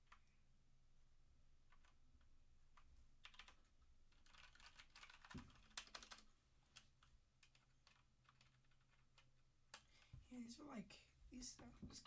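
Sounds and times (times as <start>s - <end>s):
mechanical keyboard typing: 3.2s - 6.2s, 7.4s - 9.3s.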